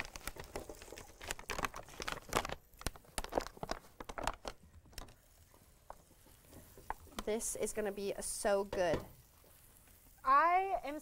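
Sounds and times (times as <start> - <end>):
paper bag crinkling: 0.0 - 7.3.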